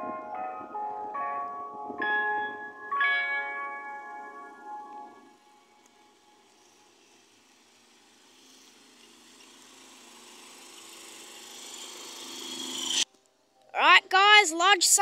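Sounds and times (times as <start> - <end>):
van engine and tyres approaching: 4.1 - 13.0.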